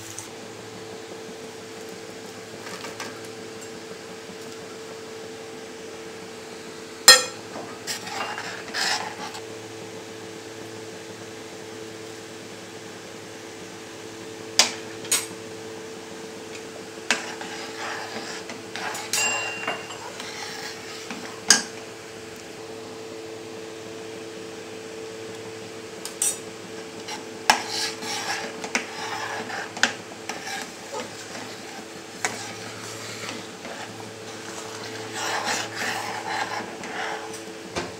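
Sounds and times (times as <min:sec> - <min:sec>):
spoon clinking against pan: 0:07.1 - 0:07.4, 0:19.0 - 0:20.1
spoon stirring in metal pan: 0:07.1 - 0:09.4, 0:16.5 - 0:21.8, 0:26.2 - 0:37.4
steady low hum: 0:26.5 - 0:37.8.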